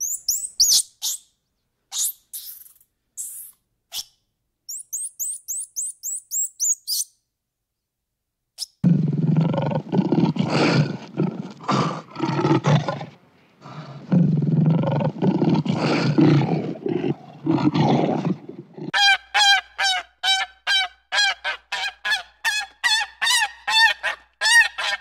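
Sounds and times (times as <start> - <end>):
high bird chirps: 0.0 - 4.1, 4.7 - 7.2.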